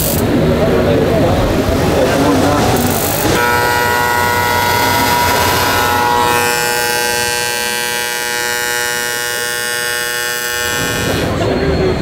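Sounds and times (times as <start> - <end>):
long horn blast: 3.3 - 11.5.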